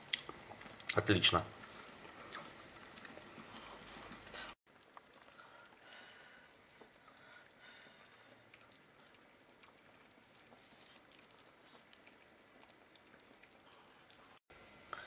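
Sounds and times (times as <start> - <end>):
pot simmering with bubbling pops: 0.0 - 15.0.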